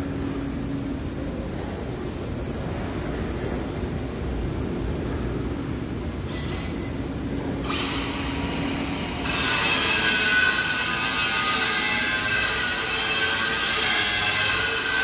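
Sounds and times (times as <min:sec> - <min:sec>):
grinder cutting steel: 0:09.2 - 0:15.0.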